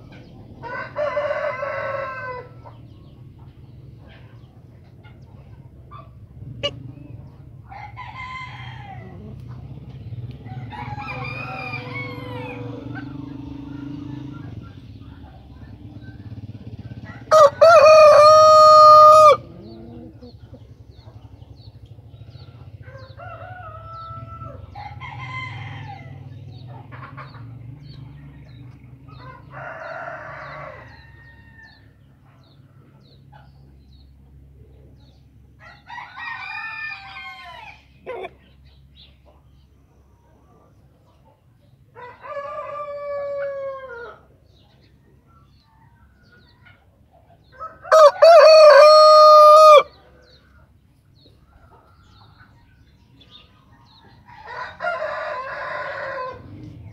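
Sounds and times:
chickens clucking: 0:00.0 - 0:07.9, 0:08.8 - 0:24.7, 0:25.9 - 0:31.0, 0:37.4 - 0:56.9
rooster crowing: 0:00.6 - 0:02.6, 0:10.5 - 0:12.9, 0:17.0 - 0:19.8, 0:35.6 - 0:37.8, 0:42.0 - 0:44.2, 0:47.6 - 0:49.9, 0:54.3 - 0:56.5.

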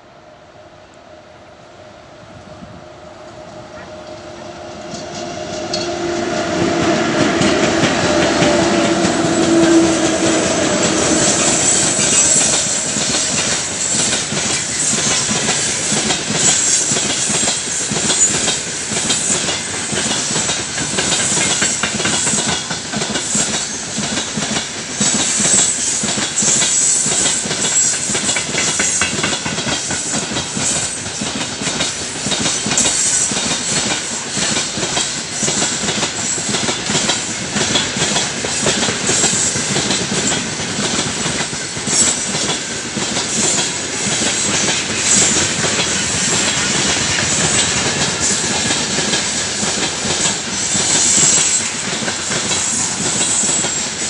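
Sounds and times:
train wheels rumbling on rails: 0:01.0 - 0:54.0
locomotive two-note hum: 0:03.0 - 0:14.1.

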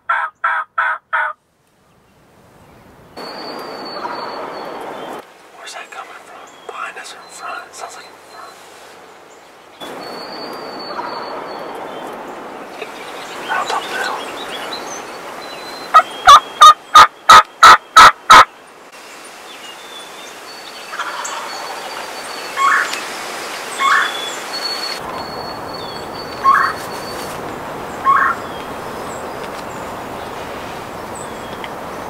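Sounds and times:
wild turkey calling: 0:00.1 - 0:01.4, 0:05.7 - 0:08.9, 0:15.9 - 0:18.5, 0:20.9 - 0:23.0, 0:23.8 - 0:24.3, 0:25.4 - 0:27.4, 0:28.0 - 0:28.6.

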